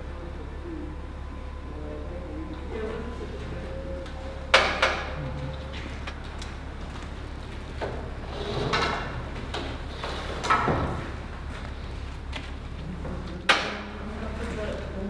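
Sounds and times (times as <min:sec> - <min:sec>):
casket lift sliding scrape: 0:08.2 - 0:09.2.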